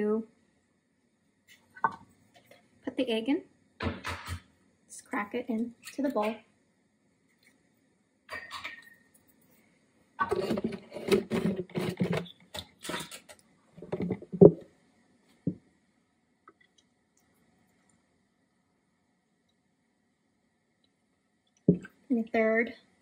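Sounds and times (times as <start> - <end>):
kitchenware clattering and rattling: 8.3 - 9.0, 10.2 - 14.6.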